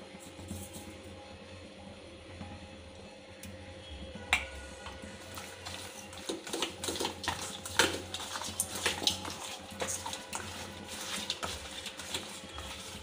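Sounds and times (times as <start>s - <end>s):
wet squelching of kneaded fish: 5.1s - 13.0s.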